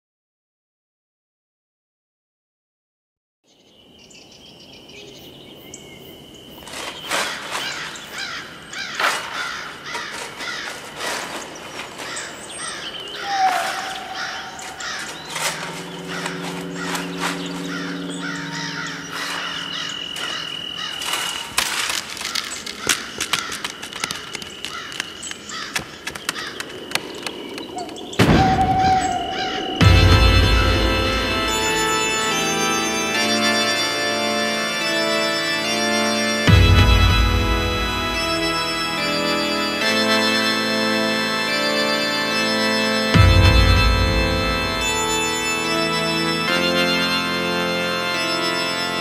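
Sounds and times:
birds calling: 0:03.5 - 0:49.0
crows cawing: 0:06.9 - 0:31.5
low held tone: 0:14.6 - 0:20.9.

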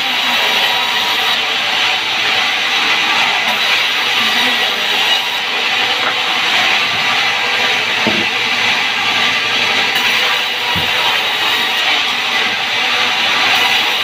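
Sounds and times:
low knock: 0:08.0 - 0:08.4.

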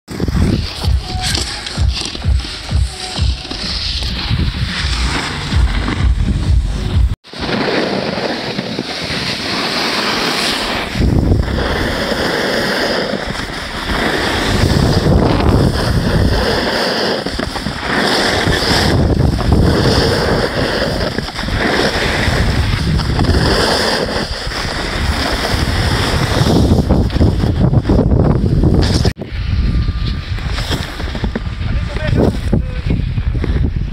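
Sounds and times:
wind buffeting microphone: 0:00.1 - 0:02.9, 0:10.6 - 0:33.9
sliding over packed snow: 0:07.3 - 0:28.0.

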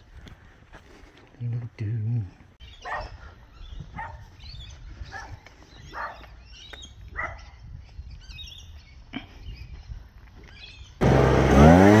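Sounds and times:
birds chirping faintly: 0:01.4 - 0:11.0
dog barking faintly: 0:02.8 - 0:04.3, 0:05.1 - 0:06.4, 0:07.2 - 0:07.5.

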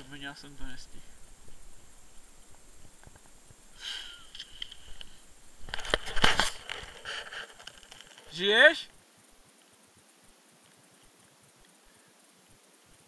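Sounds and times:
hand handling camera: 0:05.7 - 0:08.3.

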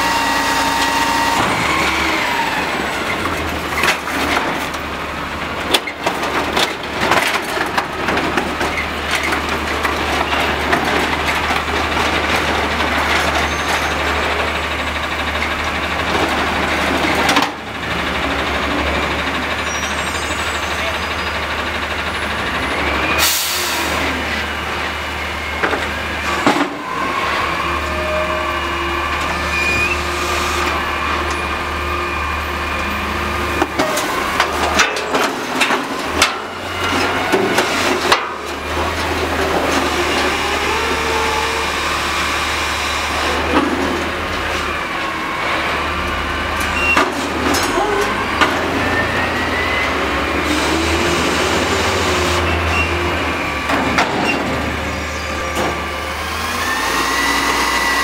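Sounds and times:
hydraulic whine: 0:00.0 - 0:03.3, 0:47.6 - 0:58.0
truck engine running: 0:00.0 - 0:27.8.

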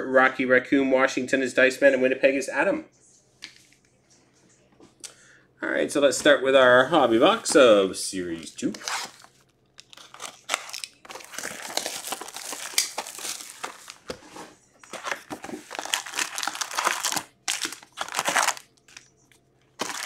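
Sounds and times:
plastic shrink-wrap crinkling: 0:08.7 - 0:14.2, 0:14.8 - 0:20.0.

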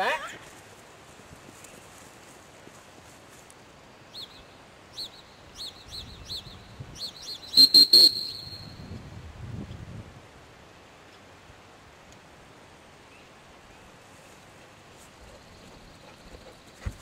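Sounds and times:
dog-training whistle toots: 0:07.5 - 0:08.8.

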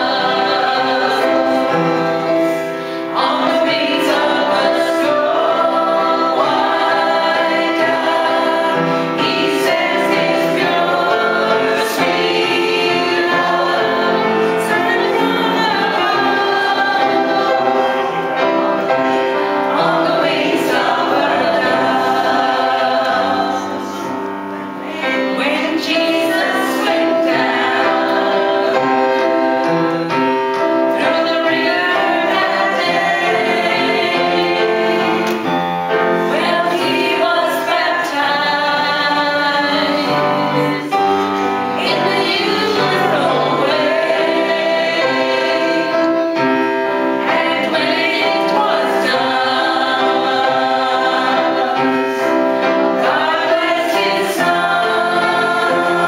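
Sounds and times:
women singing a hymn: 0:00.0 - 0:56.0.

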